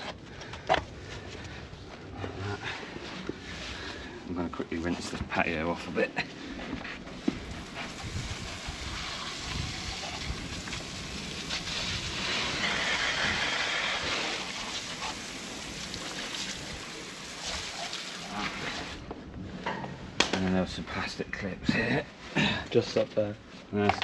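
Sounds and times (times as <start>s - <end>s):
hose spray hissing on stone: 7.1s - 19.0s.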